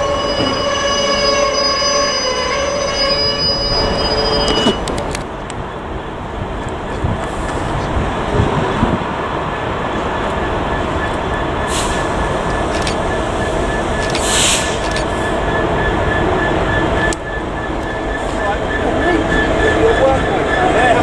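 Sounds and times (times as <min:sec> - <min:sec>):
diesel locomotive engine running: 0:00.0 - 0:21.0
train wheels rumbling on rails: 0:00.0 - 0:21.0
short hisses: 0:14.2 - 0:14.8.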